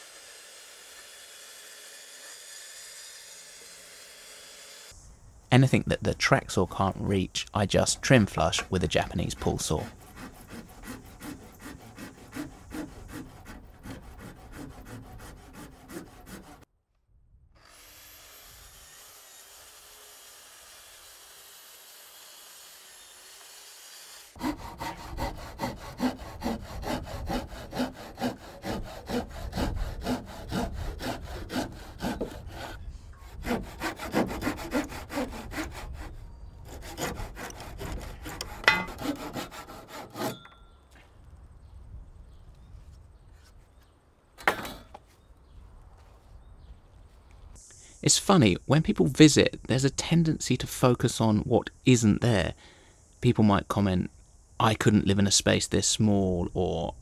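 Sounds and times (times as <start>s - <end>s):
hand saw cutting wood: 0.0s - 5.0s, 7.7s - 16.7s, 17.6s - 40.5s.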